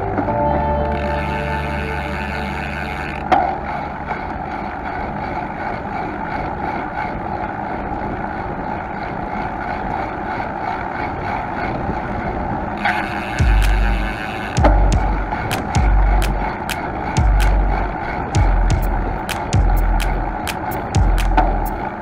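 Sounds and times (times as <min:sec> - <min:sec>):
bicycle tyre rolling on asphalt: 0:01.0 - 0:22.0
sharp tick: 0:12.9 - 0:17.8, 0:18.4 - 0:21.8.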